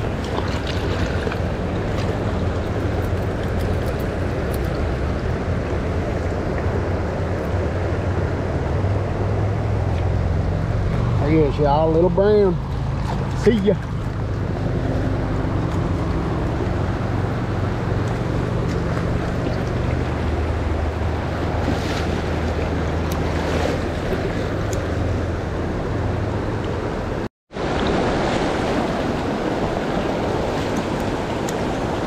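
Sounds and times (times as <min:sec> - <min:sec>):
river water rushing: 0:00.0 - 0:32.0.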